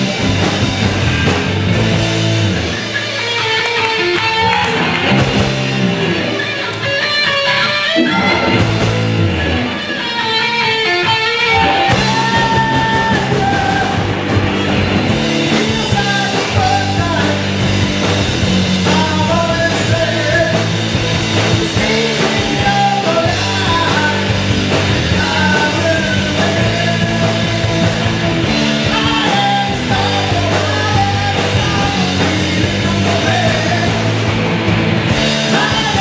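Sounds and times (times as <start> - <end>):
rock band playing: 0.0 - 36.0
person singing: 11.4 - 14.2, 21.7 - 24.4, 28.8 - 34.2, 35.4 - 36.0.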